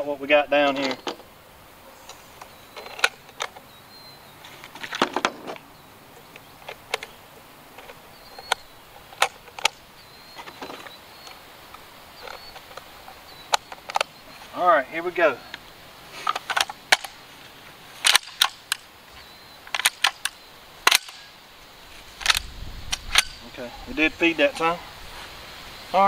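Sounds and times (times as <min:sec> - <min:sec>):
shells clicking into magazine: 0:18.0 - 0:18.8, 0:19.7 - 0:21.3.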